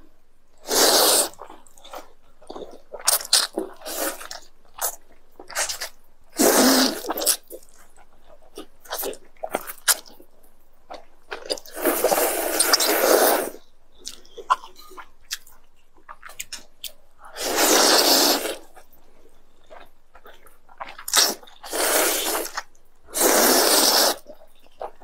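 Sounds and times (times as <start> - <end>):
people slurping noodles: 0.7 - 1.4, 6.4 - 7.4, 11.7 - 13.6, 17.4 - 18.6, 21.2 - 22.5, 23.2 - 24.2
wet chewing and lip smacks: 14.0 - 17.0.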